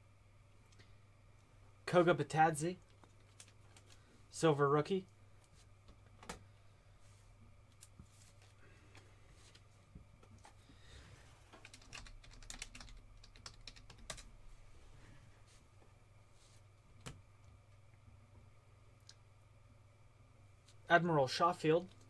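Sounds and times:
low electrical hum: 0.0 - 22.0
typing on computer keyboard: 11.6 - 14.3.

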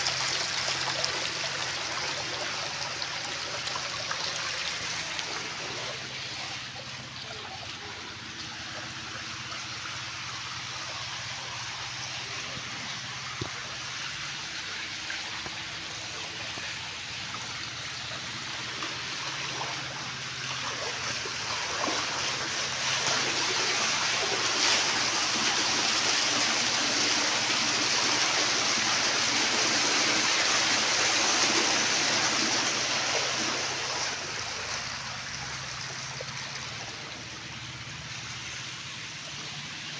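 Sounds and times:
water rushing over stones: 0.0 - 39.9.

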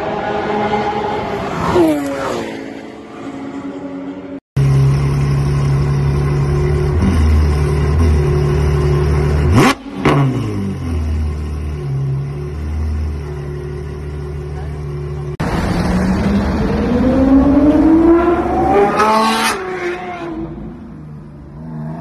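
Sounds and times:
race car passing at speed: 0.0 - 4.4, 15.4 - 20.6
car engine revving: 0.5 - 20.8
car engine idling: 4.6 - 9.9, 10.7 - 16.5.

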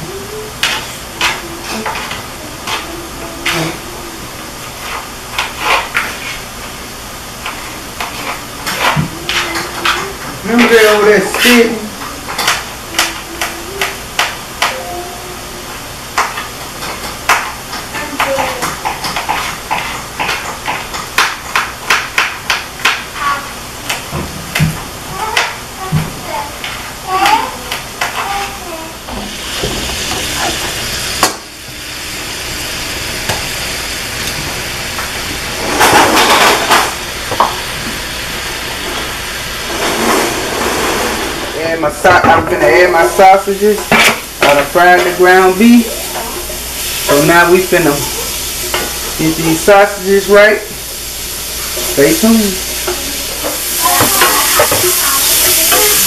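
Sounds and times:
food sizzling in pans: 0.0 - 56.0.

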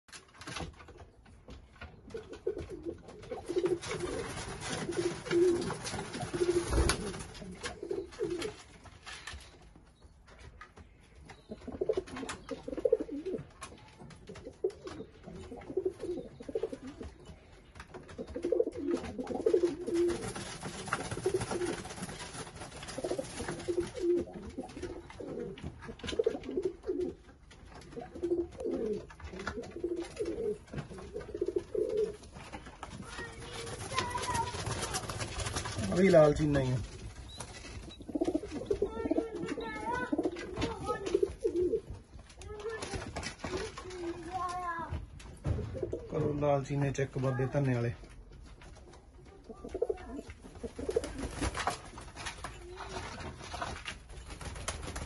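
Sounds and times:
pigeons cooing: 2.1 - 8.7, 11.4 - 17.3, 17.9 - 22.2, 22.8 - 32.4, 37.6 - 41.9, 49.5 - 51.6.

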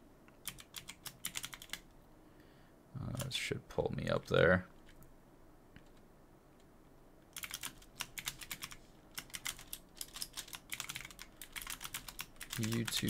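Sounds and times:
keyboard typing clicks: 0.4 - 1.8, 7.4 - 13.0.

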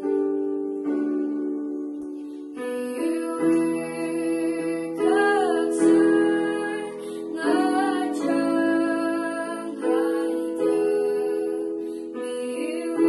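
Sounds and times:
electronic keyboard chords: 0.0 - 13.0
girl singing: 2.6 - 13.0.

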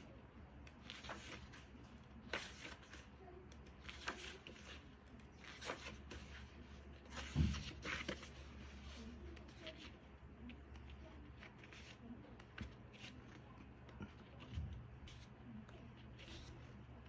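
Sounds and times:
book pages turning: 0.6 - 17.0
book thumping: 7.1 - 8.3.

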